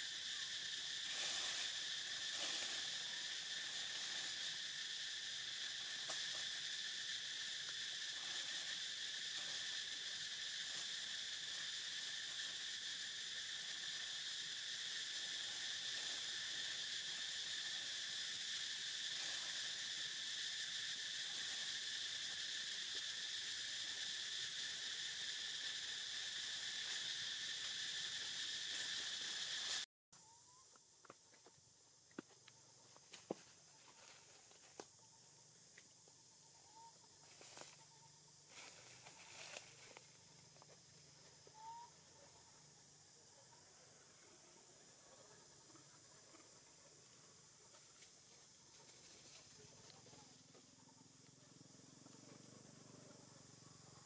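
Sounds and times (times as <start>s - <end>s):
insects chirring: 0.0s - 54.0s.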